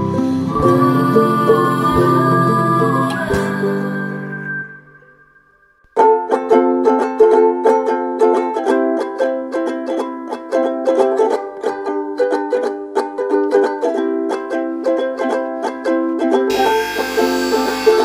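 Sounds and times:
sustained chords: 0.0s - 5.9s, 16.5s - 18.0s
plucked string instrument: 0.0s - 18.0s.

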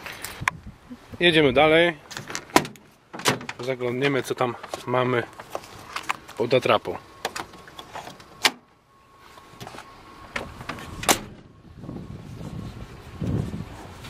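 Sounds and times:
truck door shutting click: 10.3s - 11.5s.

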